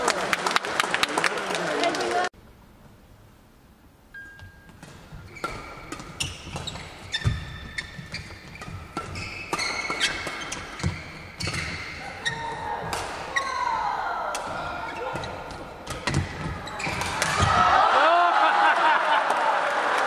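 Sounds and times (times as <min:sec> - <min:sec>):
rackets hitting shuttlecock: 0:04.2 - 0:13.5, 0:14.2 - 0:17.7
shoes squeaking on court floor: 0:04.2 - 0:13.8, 0:14.5 - 0:17.5.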